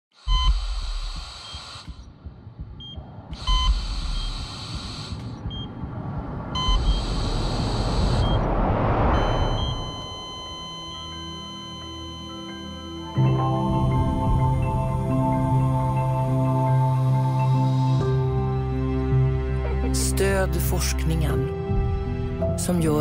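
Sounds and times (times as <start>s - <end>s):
electronic buzzing alarm: 0.2s - 2.1s, 2.8s - 5.7s, 6.6s - 8.5s, 9.1s - 13.4s
deep rumble: 1.8s - 11.3s, 21.3s - 23.0s
rising whoosh: 2.2s - 10.8s
soft sustained music tones: 6.6s - 23.0s.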